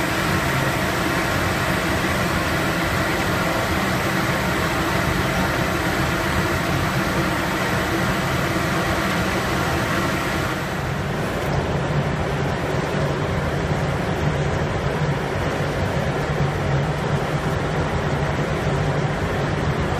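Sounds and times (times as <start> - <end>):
machine hiss: 0.0 - 11.4
machine drone and whir: 0.0 - 19.9.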